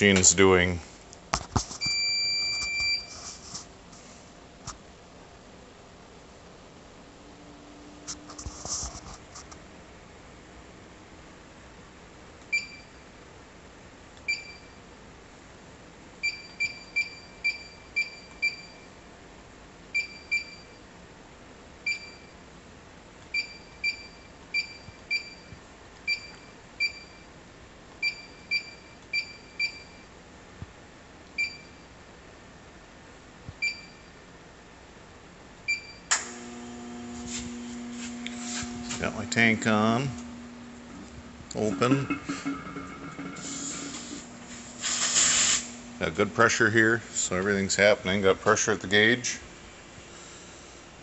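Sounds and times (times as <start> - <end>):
machine humming: 36.1 - 51.0.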